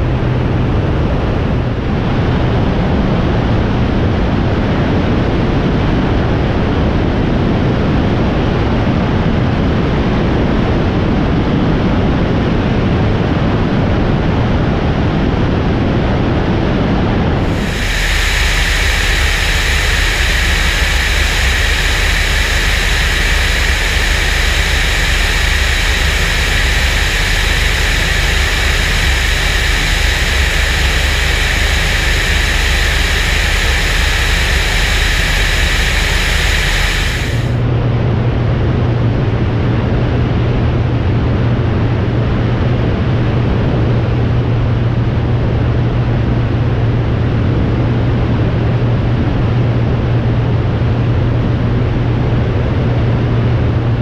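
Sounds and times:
aircraft engine noise: 17.2s - 37.8s
airflow rushing: 17.4s - 37.6s.

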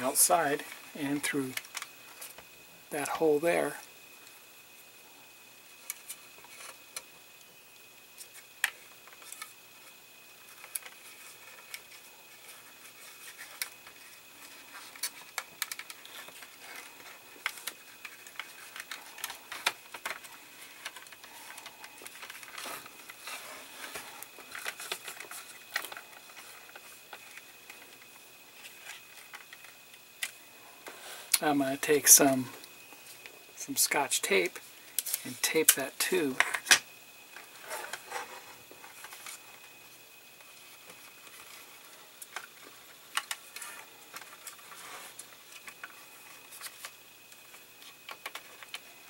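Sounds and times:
plastic parts clicking and tapping: 10.5s - 30.4s, 35.0s - 36.8s, 40.8s - 48.9s.

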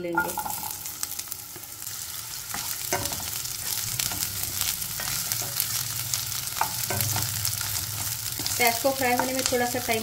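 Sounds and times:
onion sizzling in hot oil: 0.0s - 10.0s
spatula scraping and tapping pan: 2.4s - 5.8s, 6.4s - 9.8s.

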